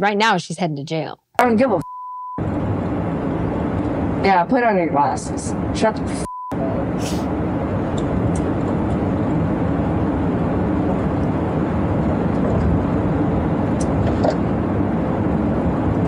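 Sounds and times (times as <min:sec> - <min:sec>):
car road and engine noise: 0:02.4 - 0:16.0.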